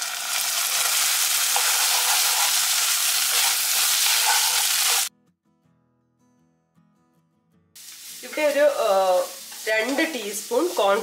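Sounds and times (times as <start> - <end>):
vegetables sizzling in hot oil: 0.0 - 5.1, 7.8 - 11.0
wooden spatula stirring in pan: 1.5 - 5.1.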